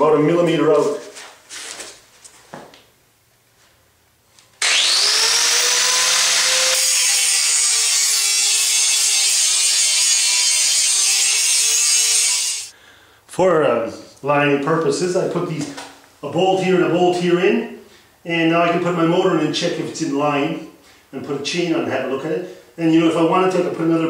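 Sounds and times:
electric grinder grinding metal: 0:04.6 - 0:12.7.

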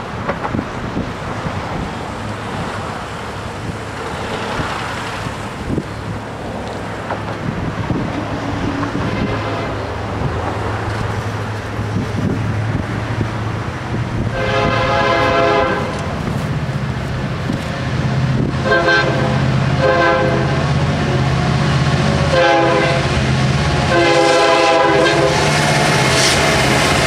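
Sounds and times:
diesel train engine hum: 0:00.0 - 0:27.0
wind on microphone: 0:00.0 - 0:27.0
locomotive air horn: 0:08.9 - 0:09.8, 0:14.3 - 0:16.1, 0:18.6 - 0:20.8, 0:22.3 - 0:26.5.

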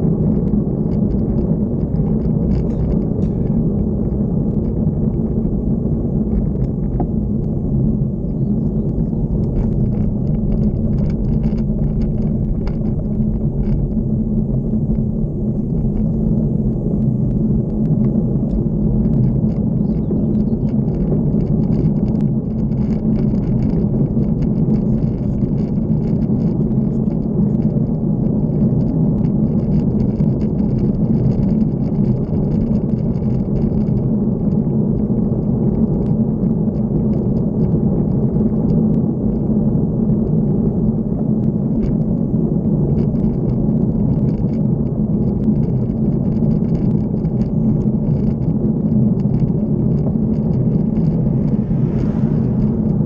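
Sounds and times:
road noise: 0:00.0 - 0:53.0
wind rumble on microphone: 0:00.0 - 0:53.0
faint high whine: 0:49.5 - 0:53.0.

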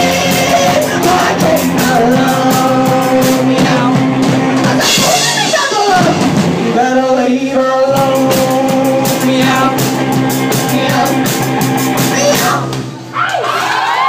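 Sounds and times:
woman singing: 0:00.0 - 0:04.0
live rock band playing: 0:00.0 - 0:13.1.

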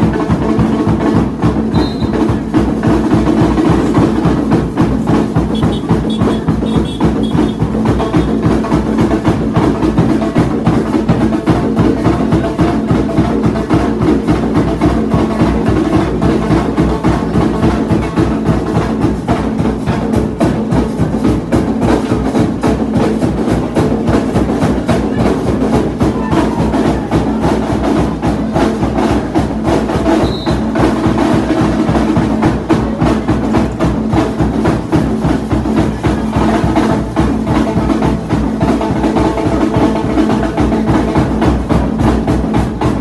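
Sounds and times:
drum group playing fast rhythm: 0:00.0 - 0:43.0.

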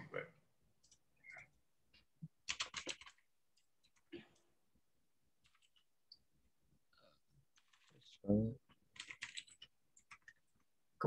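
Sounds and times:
computer keyboard typing: 0:02.4 - 0:04.0, 0:05.4 - 0:05.9, 0:07.6 - 0:08.0, 0:08.8 - 0:10.6.

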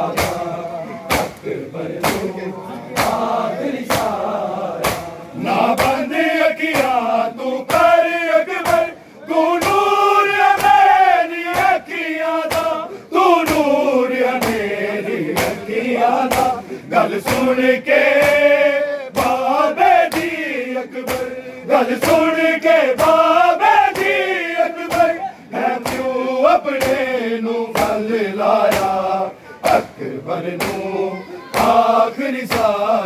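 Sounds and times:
crowd of men chanting: 0:00.0 - 0:33.0
hands beating on chests: 0:00.1 - 0:00.5, 0:02.0 - 0:02.3, 0:04.8 - 0:05.1, 0:12.4 - 0:12.8, 0:16.2 - 0:16.6.

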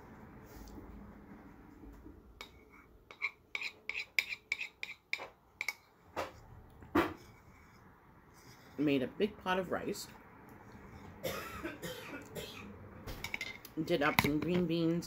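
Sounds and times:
spoon scraping ceramic bowl: 0:02.4 - 0:05.8.

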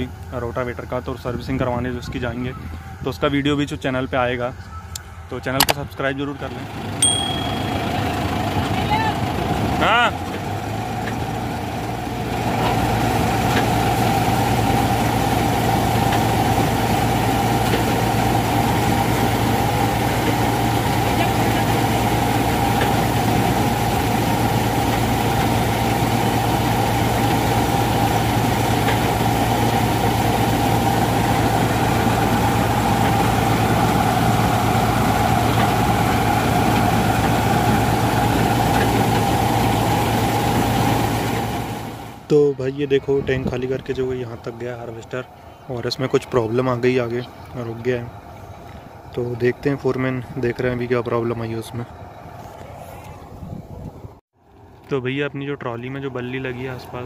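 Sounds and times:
combine harvester running: 0:00.0 - 0:57.0
grain unloading auger: 0:05.6 - 0:42.3.

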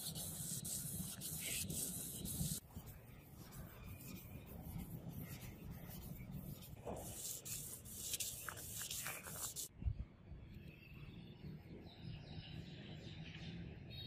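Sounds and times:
sandpaper rubbing on steel blade: 0:00.0 - 0:09.7.

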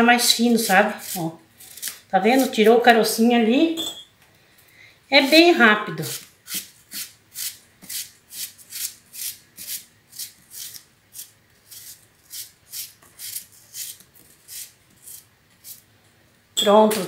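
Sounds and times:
paring knife slicing apple: 0:00.2 - 0:03.2, 0:05.2 - 0:15.8.

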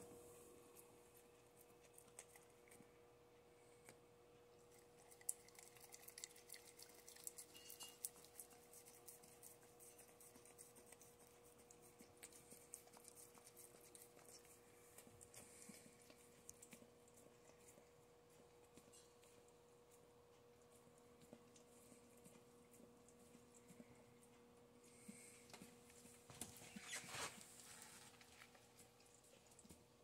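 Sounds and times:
faint steady hum: 0:00.0 - 0:30.0
dog licking: 0:04.6 - 0:18.8.

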